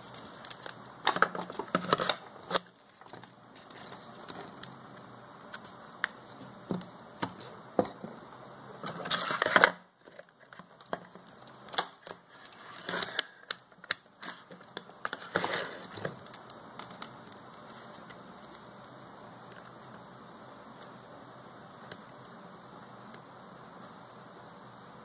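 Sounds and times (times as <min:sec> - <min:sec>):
scraping crackling rustle: 0:14.2 - 0:18.9.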